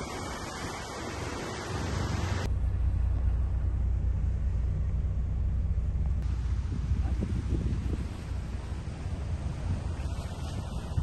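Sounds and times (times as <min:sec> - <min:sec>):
wind and water rushing: 0:00.0 - 0:02.5, 0:06.2 - 0:11.0
boat engine rumbling: 0:00.0 - 0:11.0.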